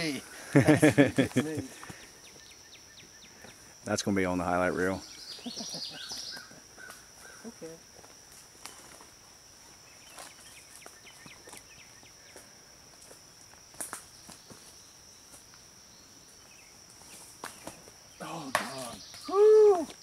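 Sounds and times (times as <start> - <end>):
high insect buzz: 0.0 - 20.0
footsteps on forest floor: 6.0 - 9.2, 10.0 - 15.5.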